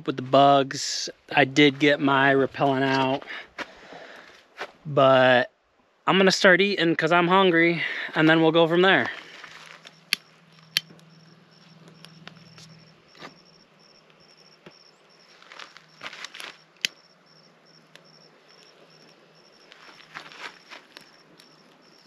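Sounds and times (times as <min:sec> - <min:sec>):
campfire popping and crackling: 0:07.8 - 0:22.0
sticks rustling on fire: 0:08.0 - 0:11.1, 0:15.2 - 0:17.0, 0:17.8 - 0:22.0
cricket chirping: 0:09.2 - 0:22.0.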